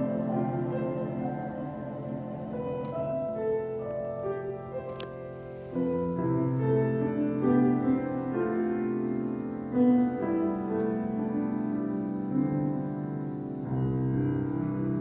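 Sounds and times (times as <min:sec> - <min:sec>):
mixed choir singing: 0:00.0 - 0:03.6
grand piano accompaniment: 0:00.0 - 0:15.0.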